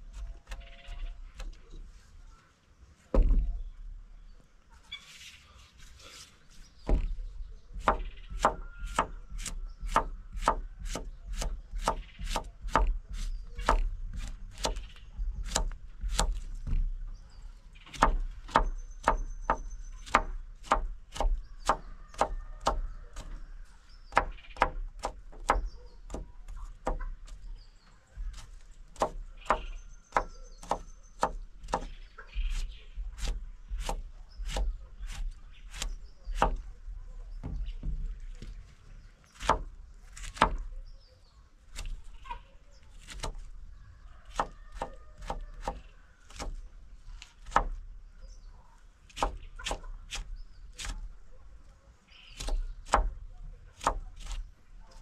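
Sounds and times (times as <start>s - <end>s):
knife chopping on wood: 6.9s - 16.9s, 17.9s - 23.4s, 24.1s - 27.4s, 28.2s - 36.6s, 39.4s - 40.7s, 44.3s - 46.7s, 47.4s - 47.8s, 49.1s - 51.0s, 52.4s - 53.2s, 53.8s - 54.4s.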